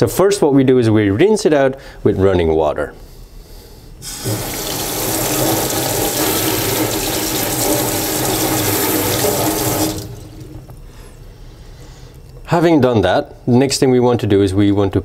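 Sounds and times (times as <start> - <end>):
tap water running into sink: 4.0 - 10.8.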